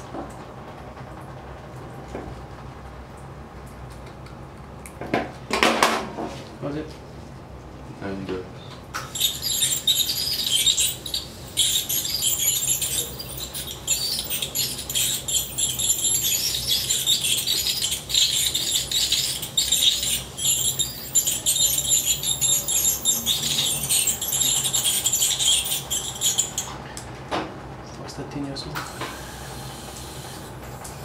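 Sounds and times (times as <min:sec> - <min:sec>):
dental handpiece hissing: 0:09.1 - 0:26.7.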